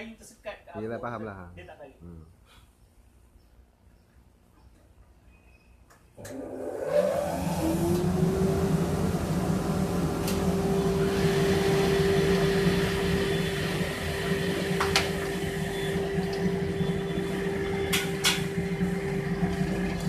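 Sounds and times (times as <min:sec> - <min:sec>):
dust collector blower humming: 0:06.2 - 0:20.0.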